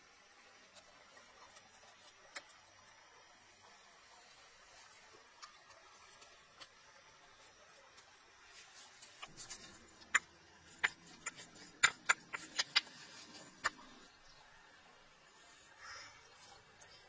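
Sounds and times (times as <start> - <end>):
sharp clicks and taps: 9.2 - 13.9.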